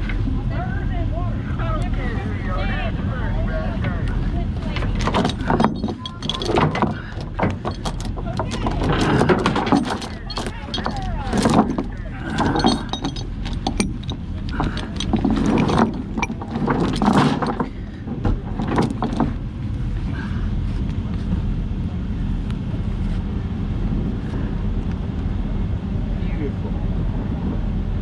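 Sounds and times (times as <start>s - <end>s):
chain links clinking: 4.8s - 19.4s.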